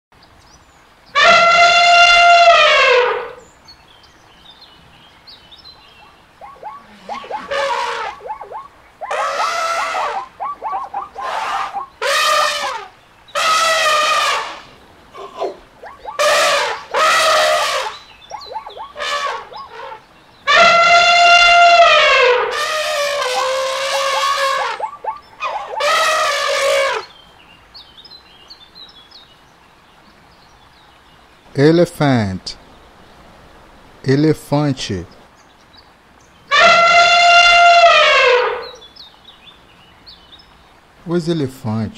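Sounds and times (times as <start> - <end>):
elephant trumpeting: 1.2 - 3.4, 6.4 - 27.1, 36.5 - 38.8.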